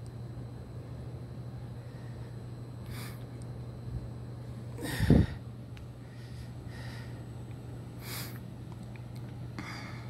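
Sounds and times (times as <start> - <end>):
steady low hum: 0.0 - 10.0
exhale blowing on microphone: 4.8 - 5.4
faint breaths: 4.8 - 7.3.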